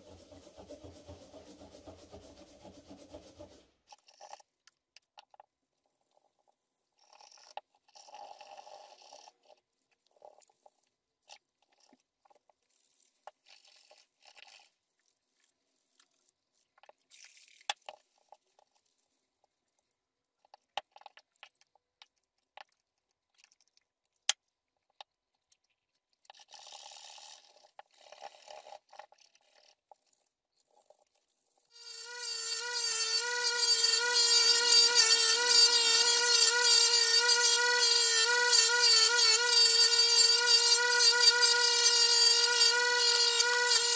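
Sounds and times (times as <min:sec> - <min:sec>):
scrubbing metal with scouring pad: 0:00.0 - 0:03.7.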